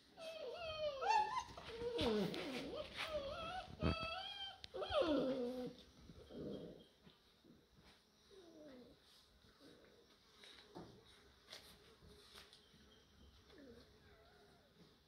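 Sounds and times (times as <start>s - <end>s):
puppies whining and yelping: 0.0s - 7.3s.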